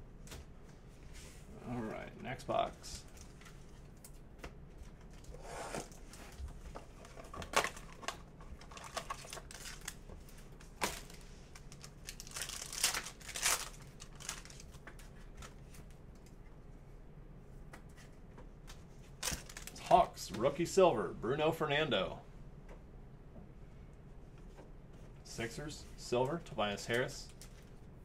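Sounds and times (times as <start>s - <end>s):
card pack wrappers crinkling: 7.0s - 15.8s, 19.2s - 20.1s.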